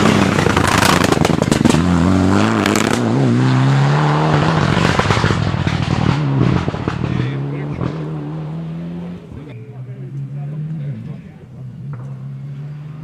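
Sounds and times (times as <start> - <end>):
sharp exhaust crackling: 0.0 - 7.9
rally car engine accelerating: 0.0 - 13.0.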